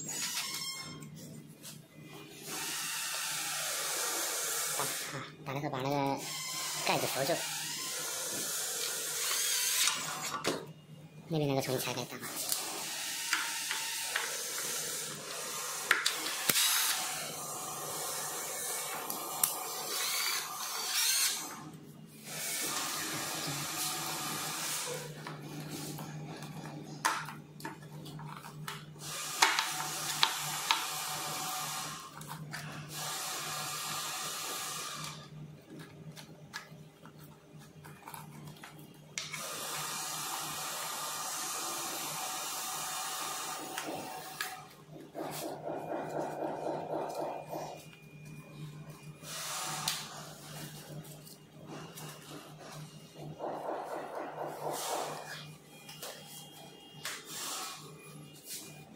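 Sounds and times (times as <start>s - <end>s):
cordless drill running: 2.4s - 5.2s, 6.2s - 10.4s, 12.3s - 21.6s, 22.2s - 25.2s, 29.0s - 32.1s, 32.9s - 35.2s, 39.4s - 44.6s.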